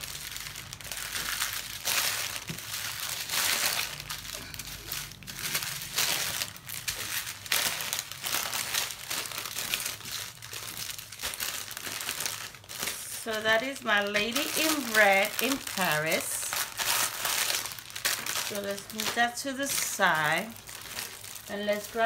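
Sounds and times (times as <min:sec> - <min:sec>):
plastic bags crinkling: 0:00.0 - 0:22.0.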